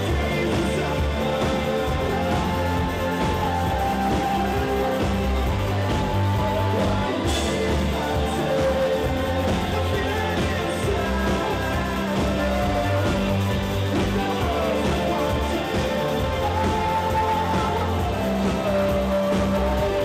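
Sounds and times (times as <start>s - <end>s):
drums: 0.0s - 20.0s
electric guitar: 0.0s - 20.0s
rock band playing live: 0.0s - 20.0s.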